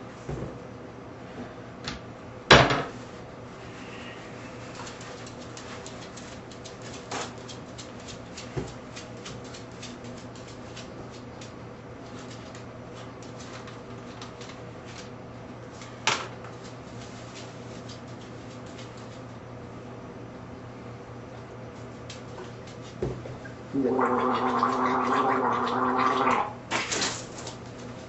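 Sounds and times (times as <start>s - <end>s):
paper towels rustling and crinkling: 12.1s - 19.2s.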